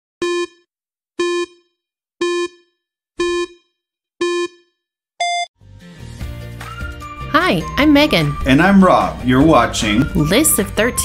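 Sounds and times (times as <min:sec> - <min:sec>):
electronic countdown beeps: 0:00.2 - 0:05.5
higher-pitched beep: 0:03.2 - 0:04.6.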